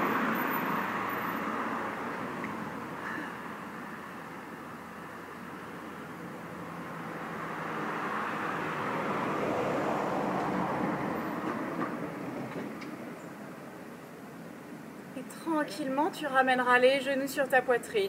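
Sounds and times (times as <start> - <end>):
vehicle passing by: 0.0 - 13.1.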